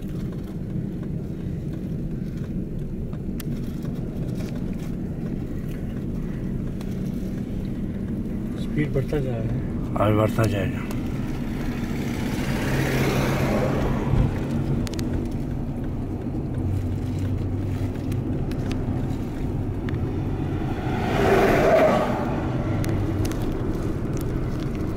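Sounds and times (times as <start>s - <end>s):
tyre and wind noise in car: 0.0s - 24.9s
vehicle passing: 6.7s - 24.9s.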